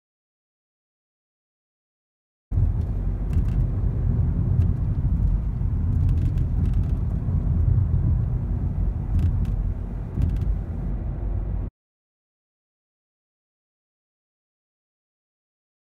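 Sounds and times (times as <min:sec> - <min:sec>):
road rumble inside car: 0:02.5 - 0:11.7.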